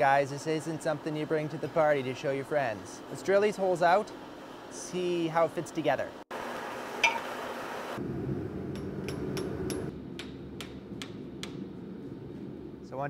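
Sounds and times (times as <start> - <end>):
low hum: 8.0 - 13.0
hammer striking steel on anvil: 8.7 - 11.6.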